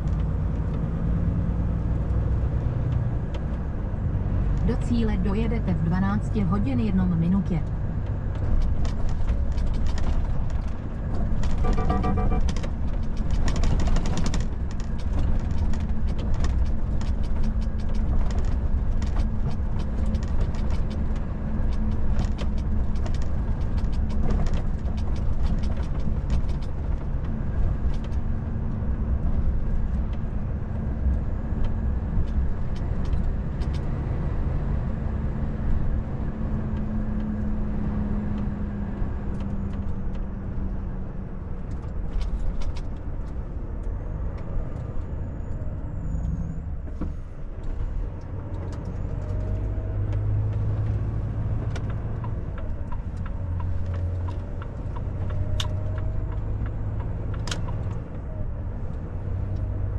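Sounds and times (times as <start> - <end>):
truck engine drone: 0.0 - 59.9
knocks and rattles: 8.3 - 28.2
short electronic tone: 11.6 - 12.4.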